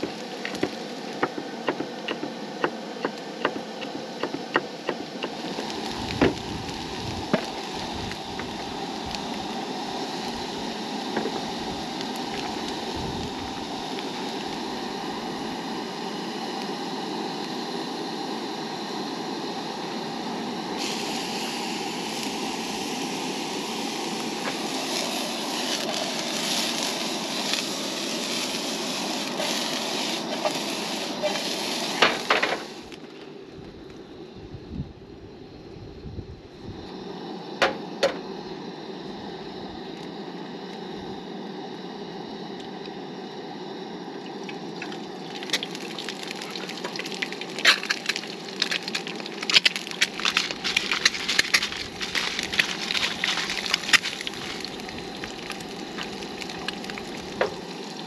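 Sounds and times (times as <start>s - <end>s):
potatoes sizzling in frying pan: 0.0s - 1.4s, 4.0s - 17.6s, 20.7s - 33.0s, 44.3s - 58.0s.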